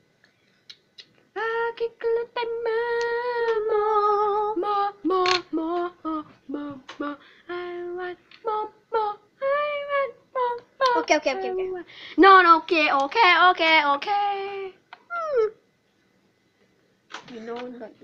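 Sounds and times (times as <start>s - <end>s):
child singing a wordless tune: 1.4s - 14.8s.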